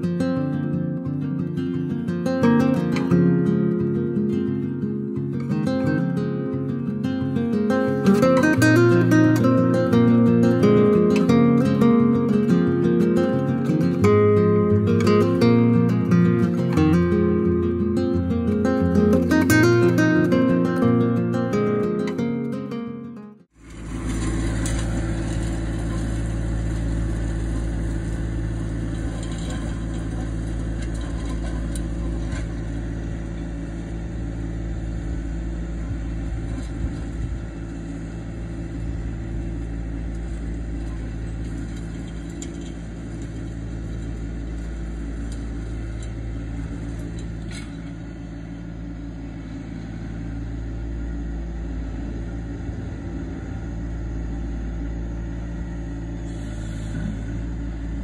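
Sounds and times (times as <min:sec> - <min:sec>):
tractor diesel engine running: 0:00.0 - 0:22.5, 0:23.4 - 0:58.0
rake dragging through dirt: 0:23.6 - 0:48.7, 0:56.2 - 0:58.0.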